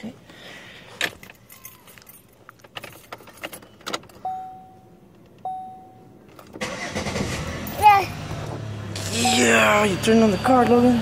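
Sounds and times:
car keys jangling in ignition: 0:00.9 - 0:07.8
dashboard warning chime: 0:03.7 - 0:06.2, 0:09.2 - 0:11.0.

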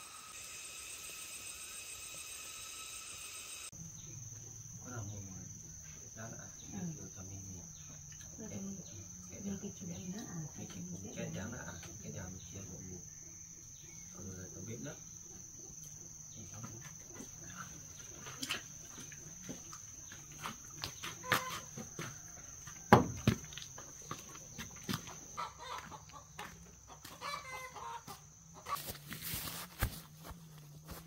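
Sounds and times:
high-pitched whine: 0:00.0 - 0:04.2
chickens clucking: 0:24.9 - 0:28.9.

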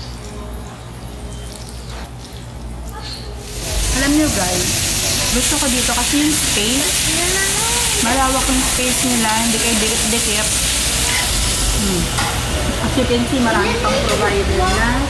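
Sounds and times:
meat sizzling on grill plate: 0:03.4 - 0:14.8
woman talking: 0:03.8 - 0:10.6, 0:11.8 - 0:15.0.

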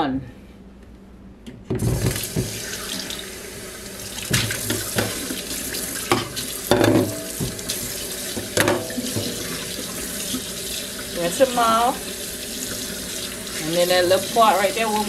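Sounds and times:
tap water running into sink: 0:01.8 - 0:15.0
water splashing: 0:04.1 - 0:06.6.

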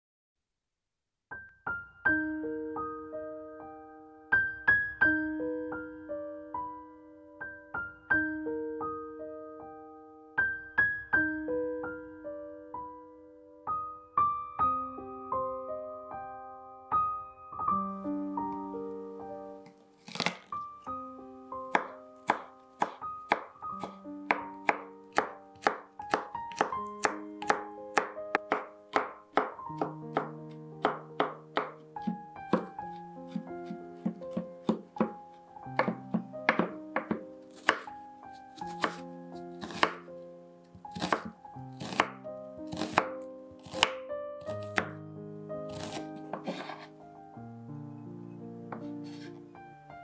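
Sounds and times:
piano music: 0:01.3 - 0:50.0
knife chopping on wooden board: 0:20.0 - 0:20.4, 0:21.7 - 0:35.2, 0:35.8 - 0:37.9, 0:38.6 - 0:39.0, 0:39.6 - 0:40.0, 0:40.9 - 0:44.9, 0:45.7 - 0:46.9, 0:48.7 - 0:49.4.

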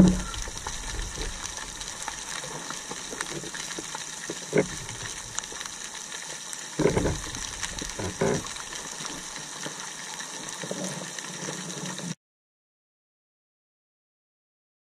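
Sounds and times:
underwater swells: 0:00.0 - 0:12.2.

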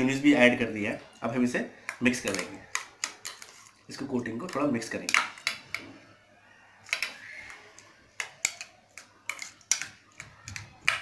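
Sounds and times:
spoon scraping bowl: 0:01.8 - 0:06.1, 0:06.8 - 0:11.0.

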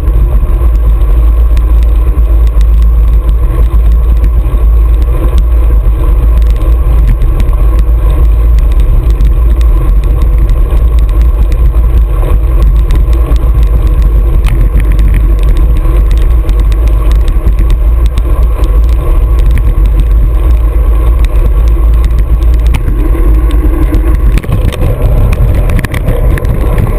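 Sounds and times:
wind and road rumble: 0:00.0 - 0:26.9.

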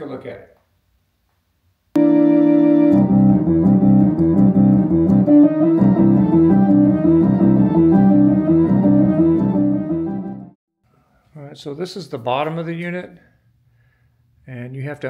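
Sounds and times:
electronic organ playing: 0:02.0 - 0:10.6.

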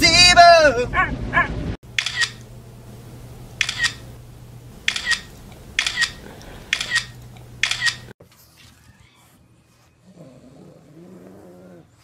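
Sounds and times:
phone camera shutter clicks: 0:02.0 - 0:02.5, 0:03.6 - 0:04.0, 0:04.9 - 0:08.1.

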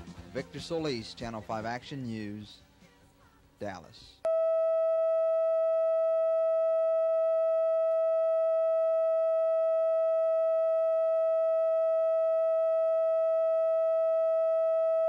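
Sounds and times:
steady mid-pitched tone: 0:04.3 - 0:15.0.

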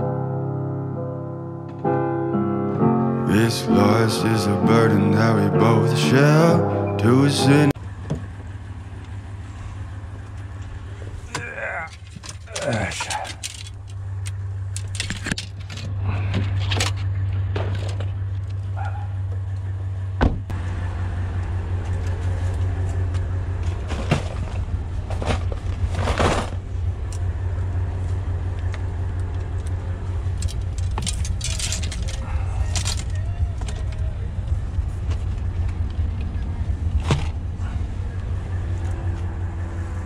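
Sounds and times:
vehicle engine idling: 0:03.3 - 0:40.0
fishing gear knocks and rattles: 0:11.9 - 0:14.0, 0:30.4 - 0:33.9.

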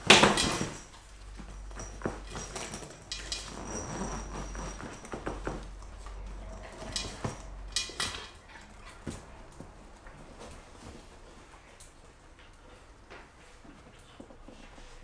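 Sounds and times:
puppy scratching fabric carrier: 0:00.0 - 0:07.6
paws knocking on hard floor: 0:04.6 - 0:07.6.

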